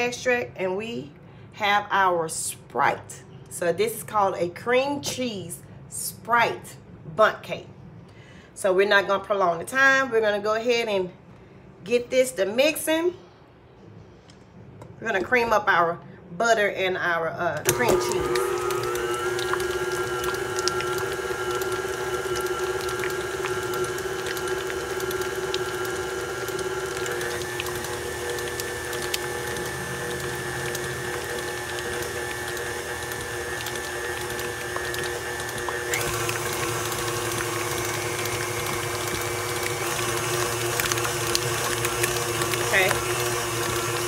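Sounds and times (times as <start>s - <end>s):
stand mixer motor whining: 17.6s - 44.0s.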